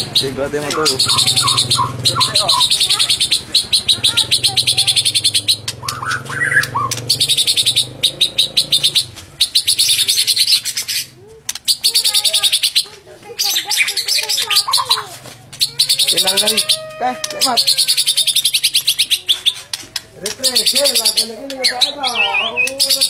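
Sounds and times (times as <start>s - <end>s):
bird singing high trills: 0.0s - 19.7s, 20.4s - 23.0s.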